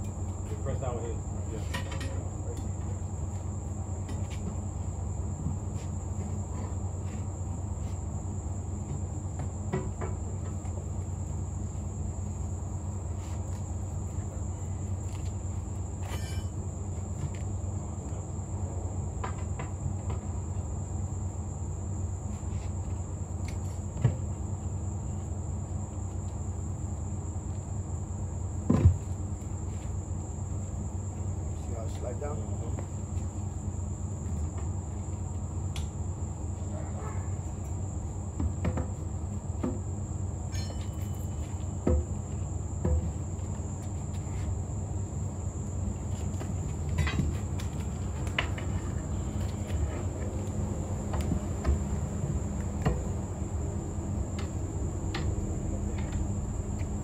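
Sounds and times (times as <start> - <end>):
high-pitched insect chorus: 0.0 - 57.0
metal clanks on wheel rim: 1.6 - 2.2, 16.0 - 16.6, 40.5 - 41.5
low hum: 46.7 - 57.0.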